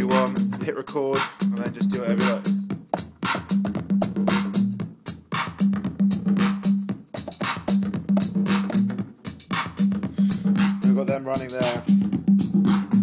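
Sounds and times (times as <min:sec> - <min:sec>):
drum machine pattern: 0:00.0 - 0:13.0
electronic dance track: 0:00.0 - 0:13.0.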